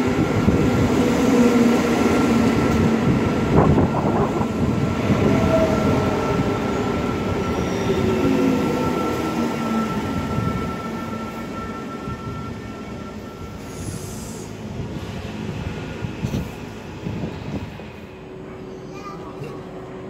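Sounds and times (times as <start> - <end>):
train slowing to a stop: 0.0 - 20.0
high squeal: 5.8 - 14.6.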